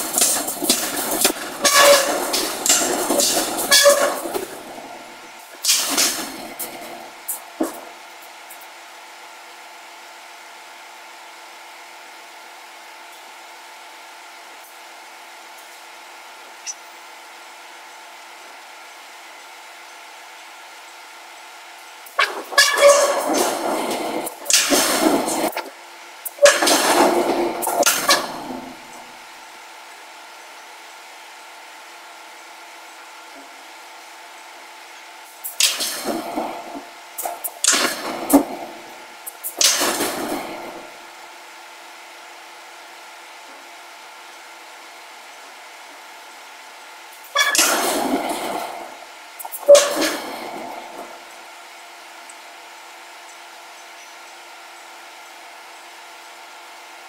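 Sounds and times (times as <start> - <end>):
forging machinery humming: 0.0 - 8.2, 21.8 - 29.5, 35.3 - 41.3, 47.3 - 52.4
machinery hum with hiss: 0.0 - 57.0.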